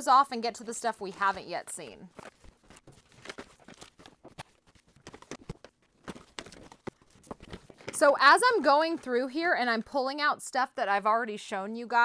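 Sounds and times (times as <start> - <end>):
plastic packages clicking and rustling: 2.1 - 8.1.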